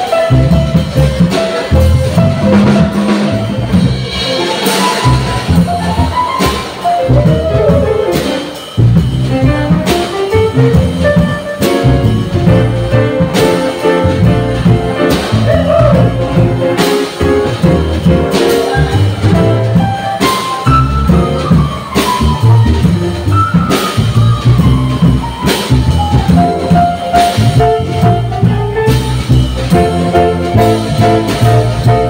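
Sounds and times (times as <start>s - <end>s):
jazz combo playing: 0.0s - 32.0s
cymbal accents: 2.7s - 28.2s.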